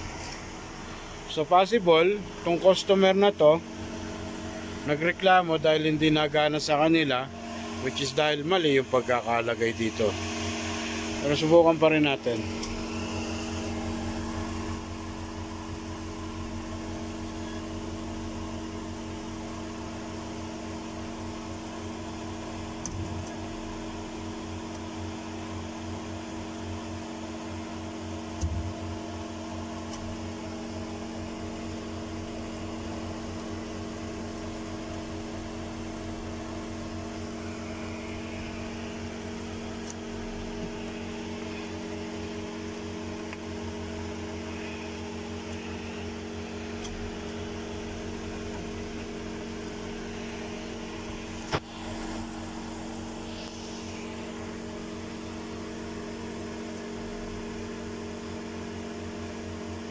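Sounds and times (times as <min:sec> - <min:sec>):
steady machine hum: 0:00.0 - 0:59.9.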